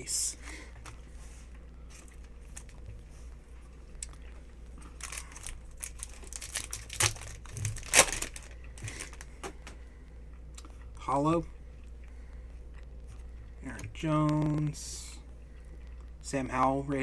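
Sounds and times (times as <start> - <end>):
wrapper crinkling and tearing: 4.9 - 9.3.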